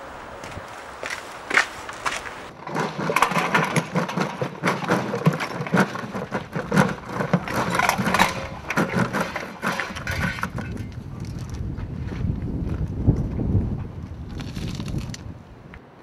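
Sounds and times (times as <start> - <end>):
debris clattering onto pavement: 1.5 - 11.0.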